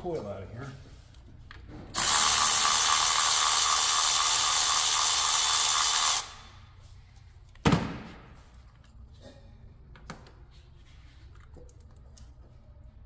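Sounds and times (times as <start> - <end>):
power tool running: 1.9 - 6.5.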